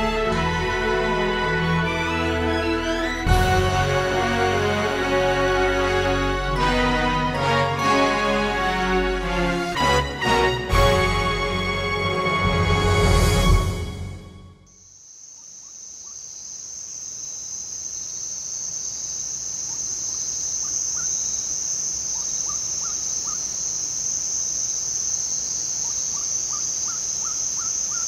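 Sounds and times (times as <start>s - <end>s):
small animal chirping: 22.0s - 23.6s, 25.8s - 28.0s.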